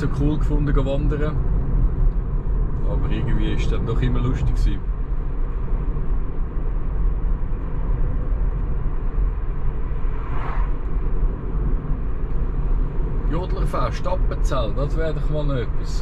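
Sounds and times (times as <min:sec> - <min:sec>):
tyre and road noise: 0:00.0 - 0:16.0
car passing whoosh: 0:07.7 - 0:13.4.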